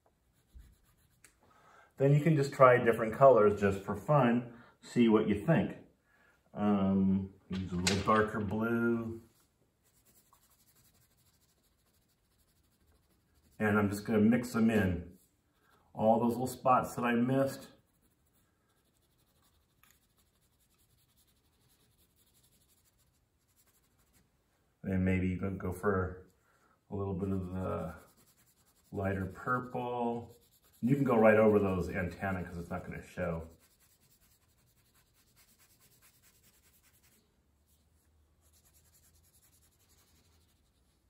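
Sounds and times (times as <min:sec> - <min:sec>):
crayon scribbling on paper: 0:00.3 - 0:01.2, 0:09.8 - 0:14.5, 0:17.5 - 0:24.2, 0:27.2 - 0:37.8, 0:38.4 - 0:41.0.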